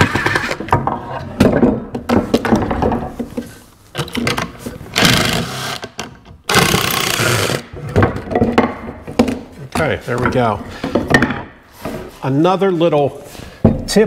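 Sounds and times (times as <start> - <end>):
wooden knocks: 7.8 - 11.6.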